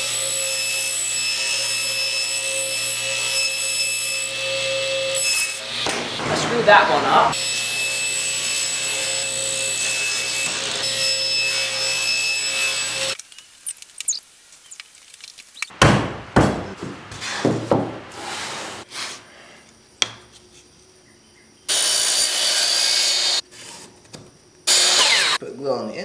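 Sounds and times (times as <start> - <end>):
miter saw cutting wood: 0.0 - 13.2, 21.7 - 23.4, 24.7 - 25.4
wooden drawer parts knocking: 15.8 - 18.0.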